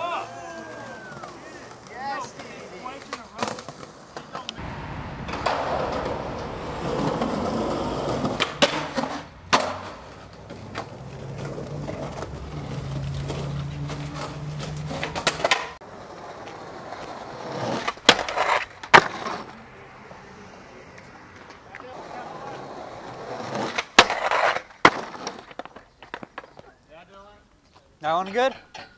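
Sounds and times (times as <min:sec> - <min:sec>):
skateboard wheels rolling on concrete: 0:00.0 - 0:28.6
skateboard popping and landing clacks: 0:05.4 - 0:19.5, 0:23.4 - 0:26.7
skateboard clacking on metal rail: 0:13.9 - 0:15.8.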